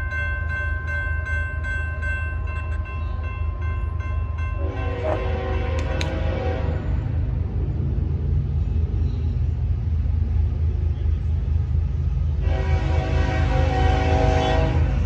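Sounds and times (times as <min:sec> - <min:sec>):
locomotive air horn blast: 0:04.6 - 0:07.2, 0:12.4 - 0:15.0.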